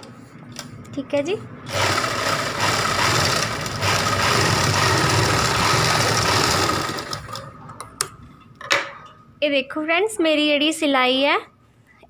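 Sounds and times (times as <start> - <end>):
sewing machine stitching: 1.7 - 7.5.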